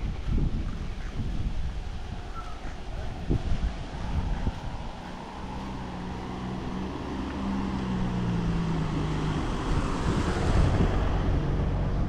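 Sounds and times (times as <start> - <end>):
vehicle engine humming: 0.0 - 12.0
rushing noise: 1.2 - 12.0.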